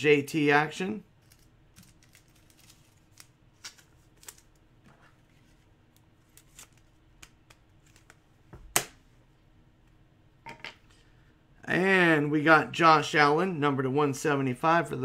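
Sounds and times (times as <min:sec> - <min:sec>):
faint steady hum: 0:00.0 - 0:15.0
trading cards clicking and rustling: 0:01.2 - 0:04.6.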